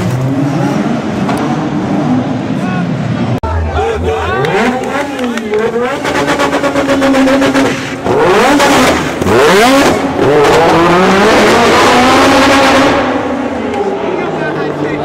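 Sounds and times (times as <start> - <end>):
sports car engines revving: 0.0 - 15.0.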